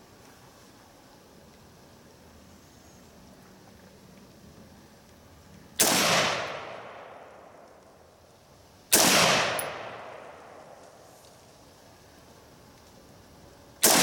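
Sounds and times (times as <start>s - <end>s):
rifle shots: 5.8s - 7.4s, 8.9s - 10.8s.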